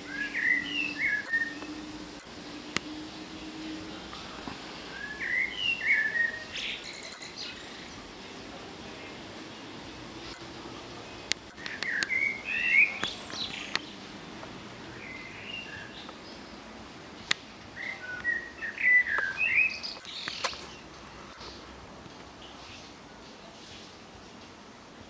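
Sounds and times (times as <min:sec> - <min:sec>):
bird chirping: 0:00.0 - 0:14.2, 0:14.8 - 0:21.6
sharp clicks: 0:11.3 - 0:12.2, 0:19.9 - 0:21.5.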